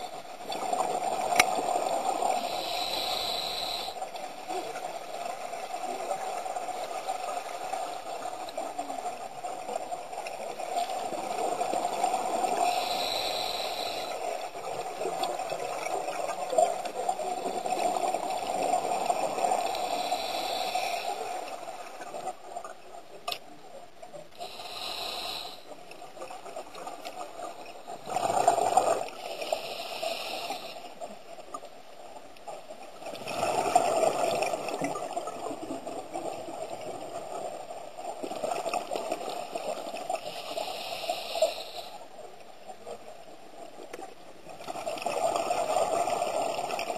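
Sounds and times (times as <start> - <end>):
underwater bubbles gurgling: 0.0 - 46.9
watery hiss: 0.8 - 4.2, 11.7 - 14.8, 17.3 - 21.6, 24.4 - 25.7, 27.9 - 30.9, 40.2 - 42.0.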